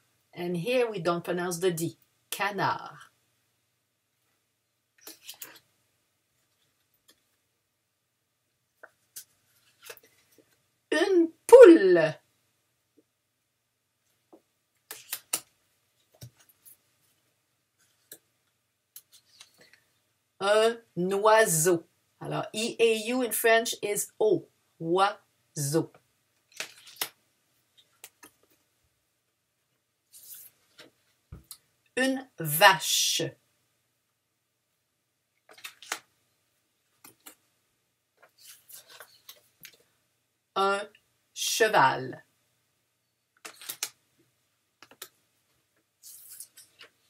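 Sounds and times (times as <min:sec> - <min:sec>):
cards shuffling clicks and rustles: 0:05.0 - 0:05.7, 0:08.8 - 0:10.6, 0:14.8 - 0:16.8, 0:19.0 - 0:19.8, 0:26.4 - 0:27.2, 0:27.8 - 0:28.6, 0:35.5 - 0:36.1, 0:38.2 - 0:39.9, 0:43.4 - 0:44.0, 0:44.8 - 0:45.2, 0:46.0 - 0:47.0
paper cards tapping and rustling: 0:14.3 - 0:16.8, 0:26.4 - 0:27.2, 0:27.8 - 0:28.6, 0:35.5 - 0:36.1, 0:43.4 - 0:44.0, 0:44.8 - 0:45.2.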